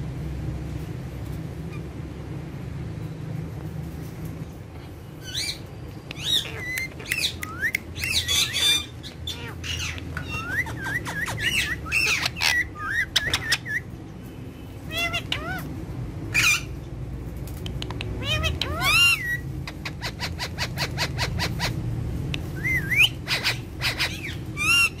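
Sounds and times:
parrots squawking and chirping: 1.6s - 2.0s, 5.2s - 14.0s, 14.7s - 16.9s, 17.6s - 25.0s.

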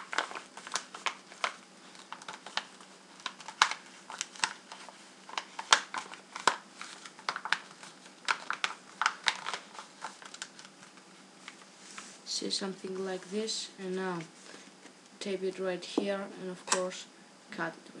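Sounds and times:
paper crinkling and crackling: 0.0s - 12.2s.

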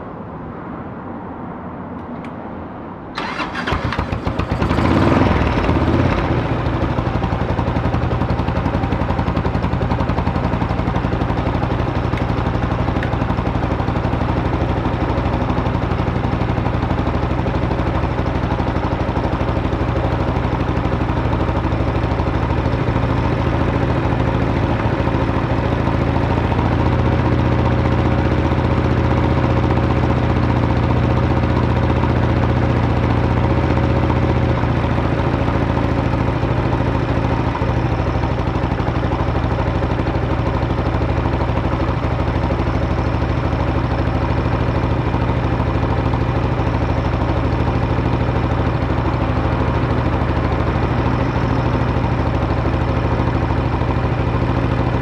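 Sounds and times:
motorcycle engine idling: 3.2s - 55.0s.

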